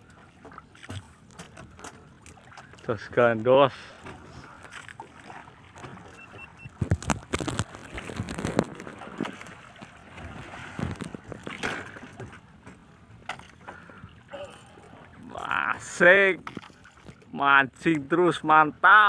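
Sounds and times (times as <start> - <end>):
knocks and clatter on boat: 0.0 - 17.4
water sloshing against boat hull: 0.0 - 18.4
wind on microphone: 6.3 - 11.6.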